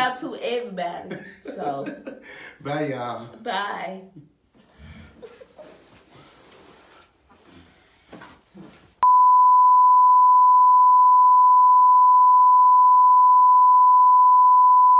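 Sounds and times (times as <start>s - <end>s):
steady pure test tone beep: 9.0s - 14.9s.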